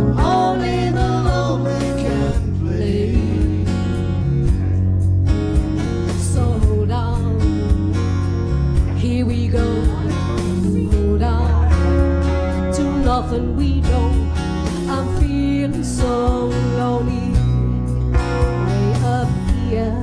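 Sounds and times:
keyboard: 0.0s - 20.0s
strummed acoustic guitars: 0.0s - 20.0s.

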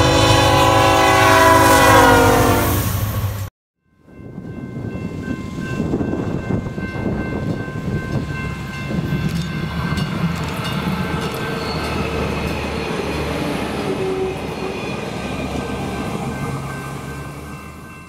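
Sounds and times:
train wheels rolling on rails: 4.4s - 18.0s.

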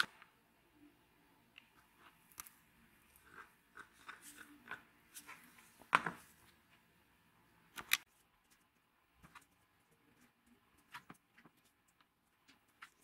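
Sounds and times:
stick scraping resin: 2.3s - 5.7s.

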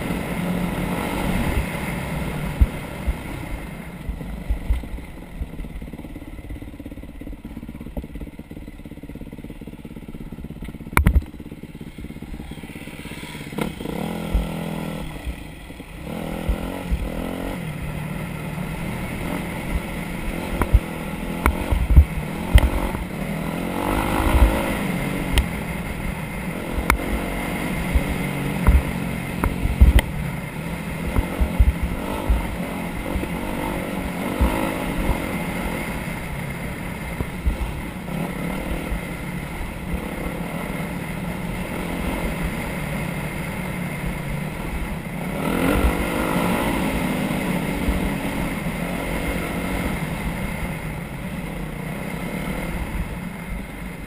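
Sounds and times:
off-road vehicle engine: 0.0s - 54.0s.

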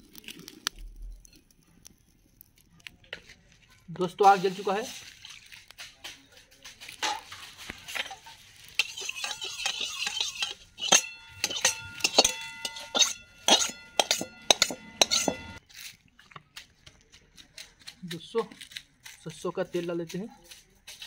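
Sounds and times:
metal spatula scraping wok: 4.0s - 15.6s
spatula knocking against wok: 8.8s - 15.6s.

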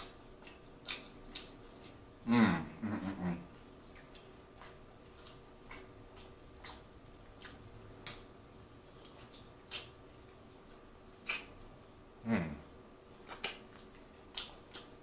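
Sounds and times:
chewing with wet mouth clicks: 0.0s - 2.2s, 2.8s - 12.0s, 12.9s - 15.0s.

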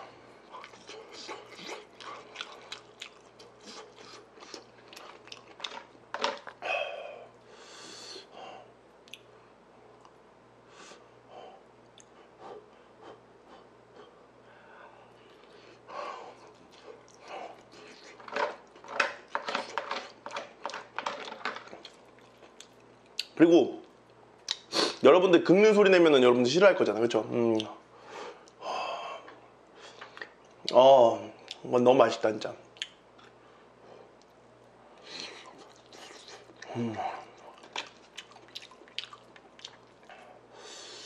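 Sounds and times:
chewing and mouth smacks: 0.4s - 6.6s, 9.0s - 9.3s, 11.8s - 12.2s, 16.3s - 24.7s, 29.9s - 30.8s, 32.7s - 33.4s, 35.0s - 40.2s.

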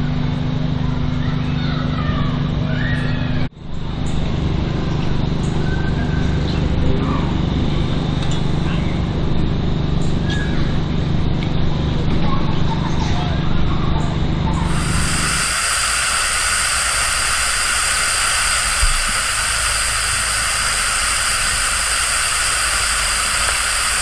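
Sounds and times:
small engine running: 14.2s - 24.0s.

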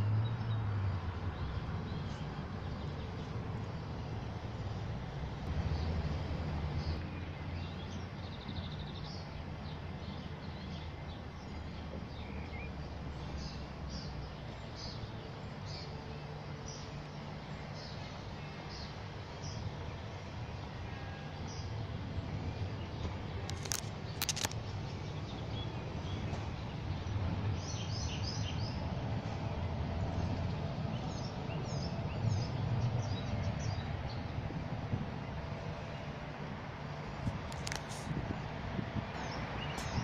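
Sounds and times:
birds chirping: 39.1s - 40.0s.

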